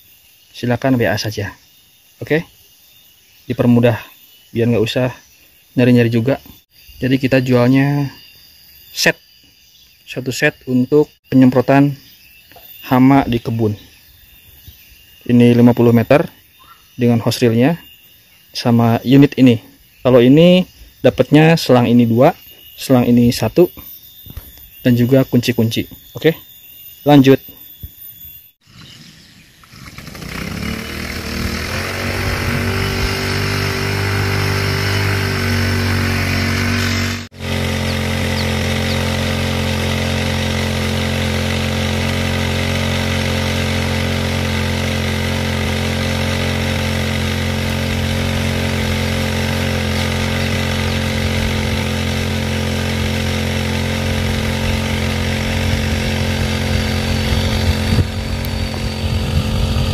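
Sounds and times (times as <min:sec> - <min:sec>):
small petrol engine running: 0:28.7 - 0:59.9.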